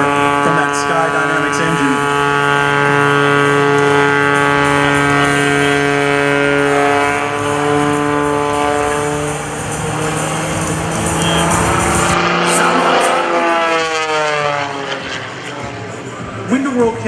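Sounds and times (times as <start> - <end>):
propeller plane engine droning: 0.0 - 17.0.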